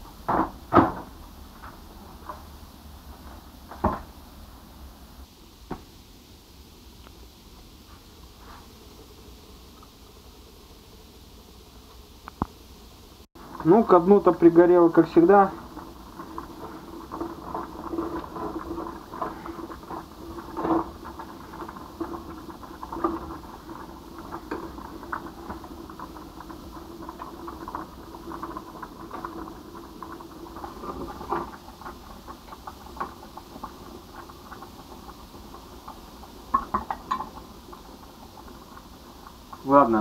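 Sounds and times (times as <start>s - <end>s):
water boiling and bubbling: 0.0s - 40.0s
utensil knocking enamel pot: 13.5s - 40.0s.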